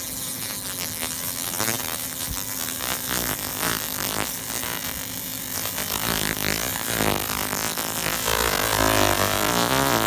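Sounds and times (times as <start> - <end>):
laser scanner buzzing: 0.0 - 10.0
steady low hum: 2.8 - 10.0.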